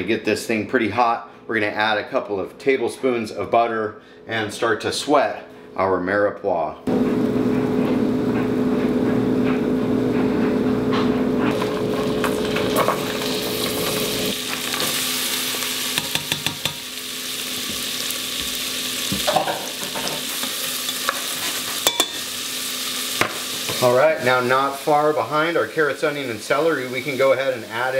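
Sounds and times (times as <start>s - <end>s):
steady hum: 6.9s - 14.4s
vegetables sizzling in a saucepan: 11.5s - 27.9s.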